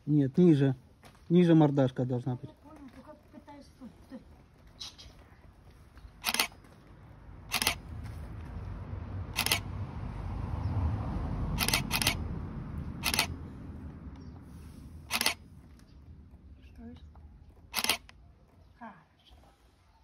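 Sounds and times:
camera shutter clicking: 6.2s - 6.5s, 7.5s - 7.8s, 9.4s - 9.7s, 11.6s - 12.2s, 13.0s - 13.4s, 15.1s - 15.4s, 17.7s - 18.1s.

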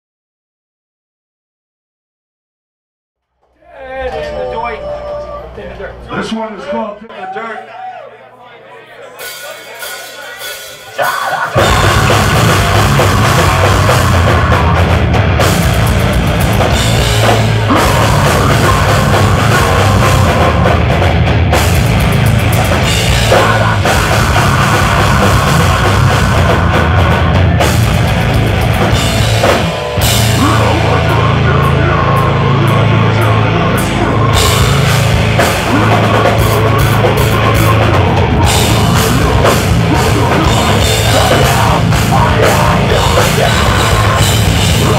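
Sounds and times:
heavy metal band playing live: 9.2s - 44.9s.

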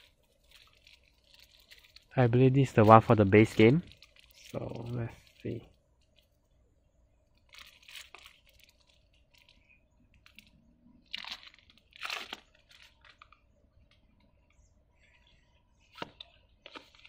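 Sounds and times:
plastic shrink wrap crinkling: 0.0s - 6.3s, 7.3s - 13.4s.

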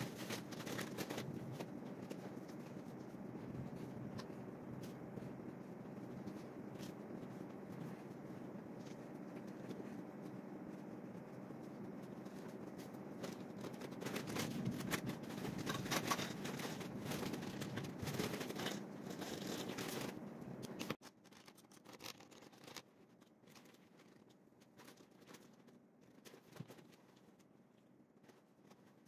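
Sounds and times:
paper and pens handled: 0.0s - 29.0s.

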